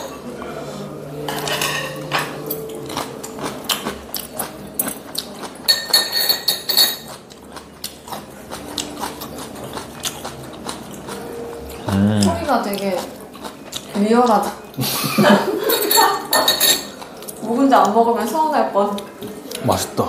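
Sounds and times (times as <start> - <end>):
metal chopsticks tapping dishes: 1.2 - 11.2, 15.7 - 18.0.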